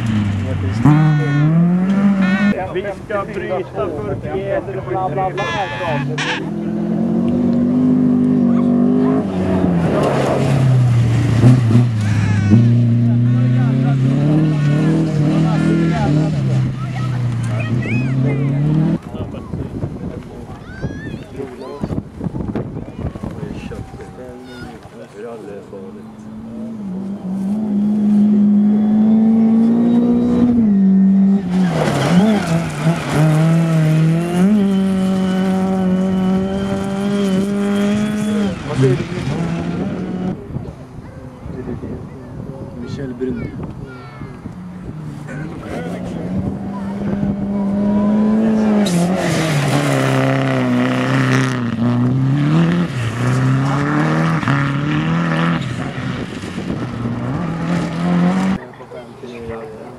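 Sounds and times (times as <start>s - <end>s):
rally car engine revving: 0.0s - 20.4s, 25.9s - 40.8s, 44.4s - 58.8s
car passing on gravel: 31.4s - 35.5s, 48.6s - 58.6s.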